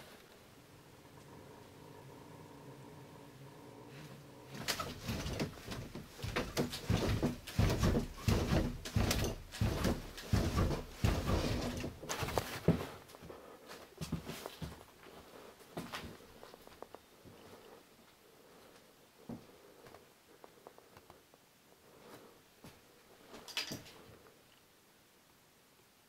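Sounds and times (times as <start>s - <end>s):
rustling: 3.9s - 24.6s
knocks and thumps: 4.6s - 13.0s.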